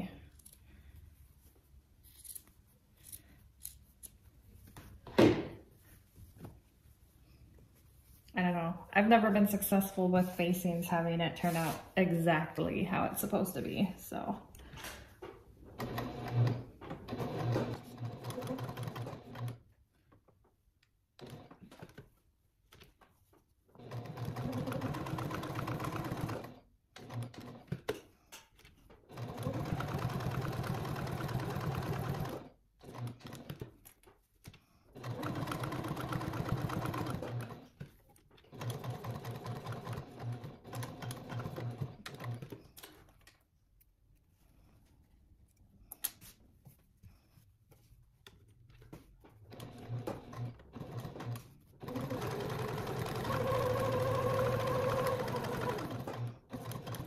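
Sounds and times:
sewing machine stitching: 15.8 - 19.6, 21.2 - 22.0, 23.8 - 28.0, 29.0 - 33.8, 34.9 - 43.0, 49.4 - 57.0.

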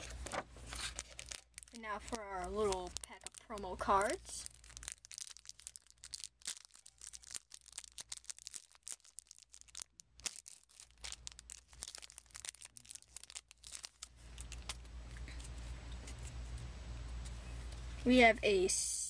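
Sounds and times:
cards being handled: 0.0 - 1.5
foil wrapper crinkling and tearing: 0.0 - 14.9.

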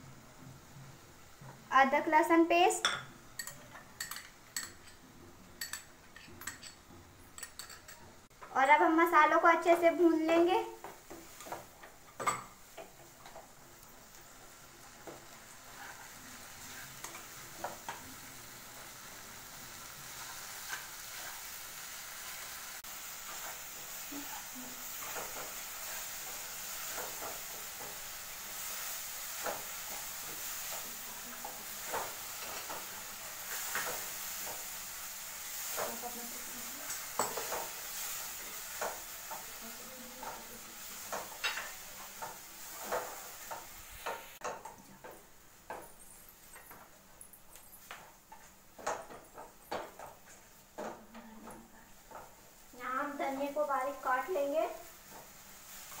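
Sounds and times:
masala sizzling in a pan: 0.0 - 56.0
spatula scraping a pan: 14.8 - 44.4.

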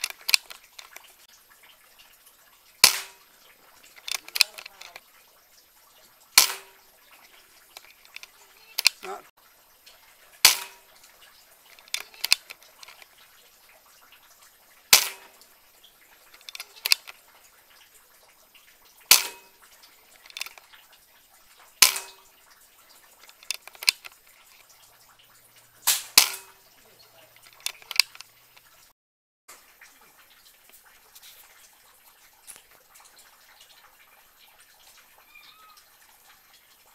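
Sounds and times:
air rifle shots: 2.8 - 3.2, 6.4 - 6.7, 14.9 - 15.3
light clicks: 3.8 - 5.0.

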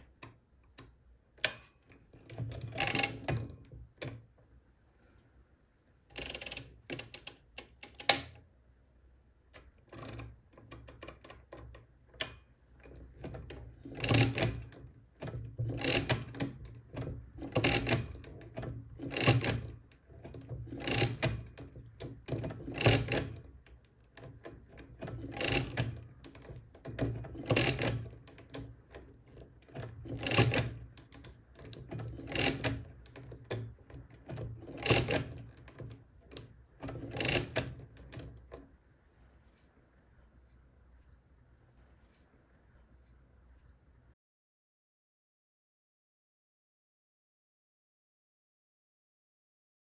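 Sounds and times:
ratcheting clicks: 0.1 - 4.2, 6.1 - 8.3, 9.6 - 38.6
metallic clatter of crank turning: 1.4 - 3.6, 6.1 - 8.3, 12.8 - 23.5, 24.2 - 38.6.

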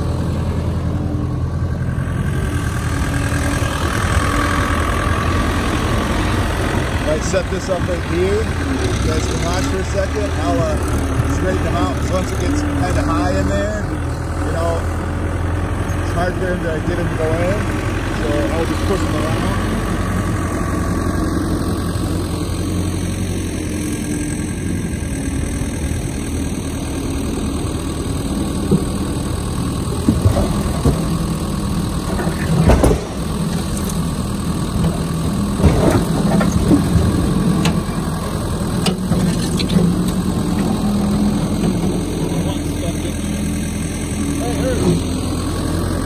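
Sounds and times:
skid steer engine running: 0.0 - 46.0
firewood thudding into truck bed: 32.6 - 33.2.

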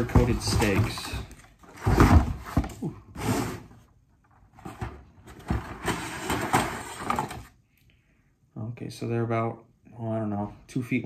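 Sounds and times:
plastic and cardboard packaging rustling: 0.0 - 7.6.

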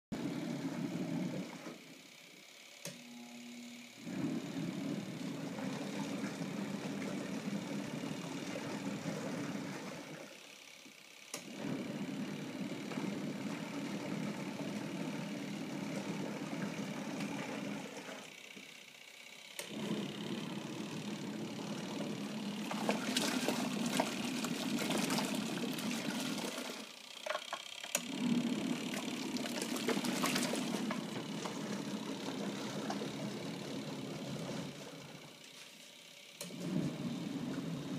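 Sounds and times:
washing machine motor humming: 0.1 - 37.9
water sloshing in tub: 21.4 - 26.9, 28.4 - 34.9.

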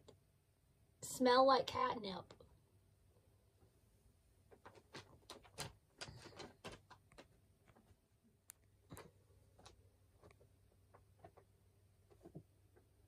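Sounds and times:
cat scratching paper bag: 4.5 - 7.3.

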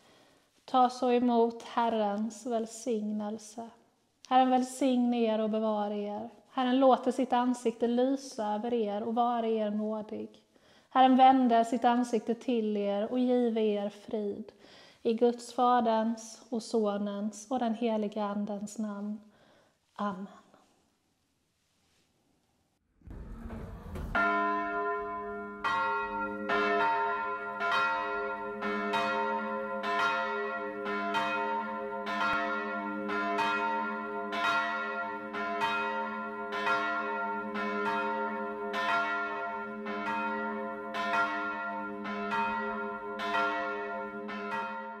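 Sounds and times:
brief low rumble: 22.8 - 24.5
church bells ringing: 23.4 - 45.0.

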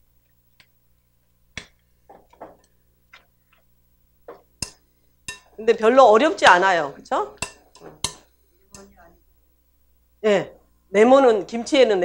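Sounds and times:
utensil tapping glass bowl: 4.3 - 5.6, 7.4 - 8.9.

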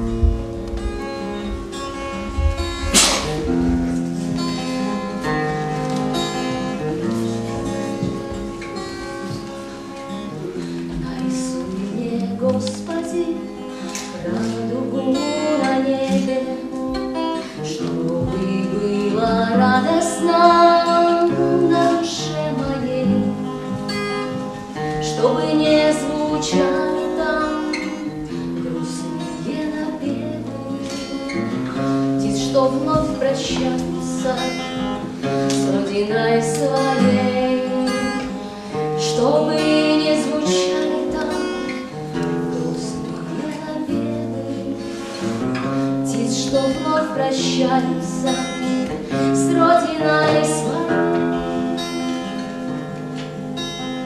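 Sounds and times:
acoustic guitar strumming: 0.0 - 54.0
woman singing: 10.2 - 52.5.

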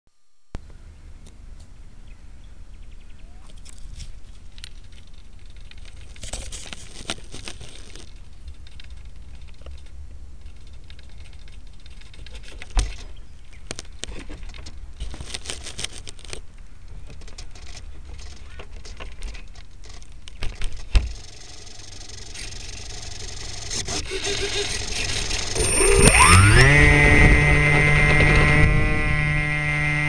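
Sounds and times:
model plane clicks and rattles: 3.5 - 29.2
plane motor whine: 21.0 - 30.0.

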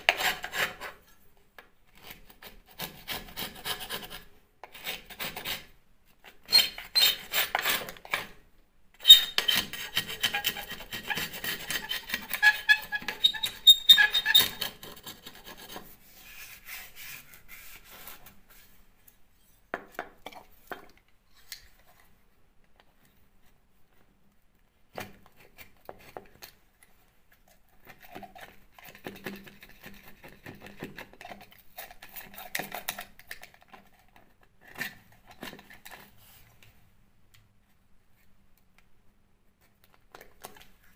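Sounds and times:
scraper rasping plaster off wall: 0.0 - 1.2, 1.9 - 5.8, 6.4 - 8.3, 9.0 - 18.7.

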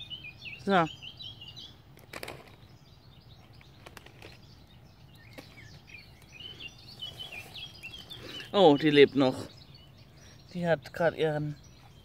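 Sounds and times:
birds chirping faintly: 0.0 - 12.0
taps and rustles in dry grass: 1.9 - 2.8, 3.4 - 6.4.

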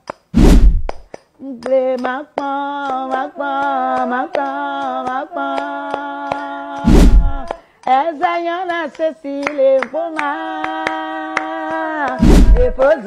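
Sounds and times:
hand claps: 0.0 - 0.3, 0.9 - 13.0
woman singing long notes: 1.4 - 13.0.

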